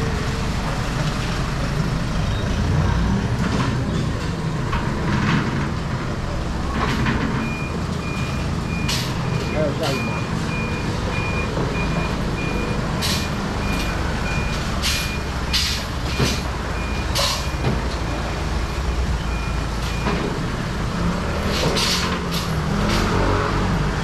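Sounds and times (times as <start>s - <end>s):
truck engine rumble: 0.0s - 24.0s
truck back-up alarm beeps: 7.3s - 18.2s, 19.2s - 20.4s.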